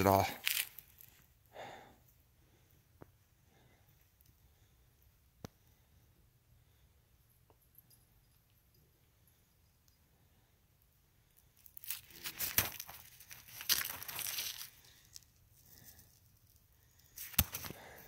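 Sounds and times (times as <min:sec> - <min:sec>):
footsteps crunching on gravel: 0:00.0 - 0:01.2, 0:11.8 - 0:14.8.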